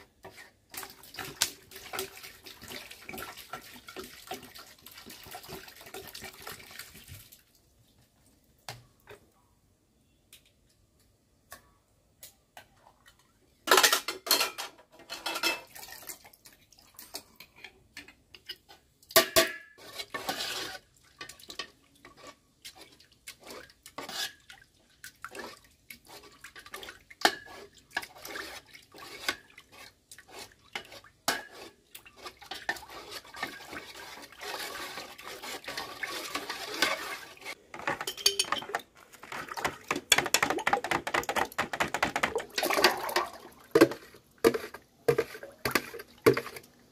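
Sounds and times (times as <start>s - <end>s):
metal spoon stirring in steel pot: 0.0s - 7.0s, 17.0s - 46.9s.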